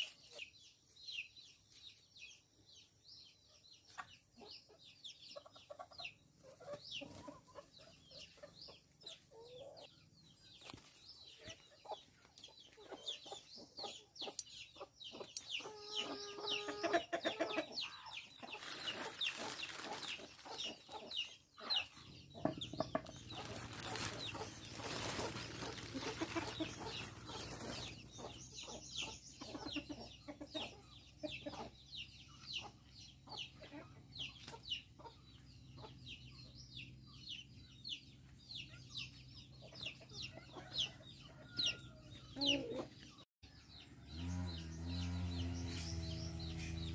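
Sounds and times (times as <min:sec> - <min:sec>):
chickens clucking: 0:00.0 - 0:46.9
plastic sack rustling: 0:18.6 - 0:20.5, 0:23.2 - 0:28.0.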